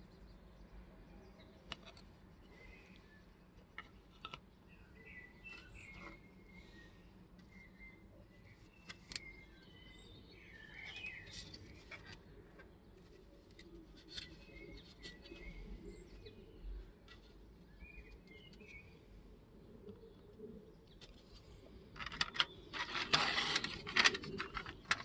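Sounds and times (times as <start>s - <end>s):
faint birds chirping: 0.0s - 25.0s
plastic parts clicking: 3.8s - 4.4s, 21.9s - 25.0s.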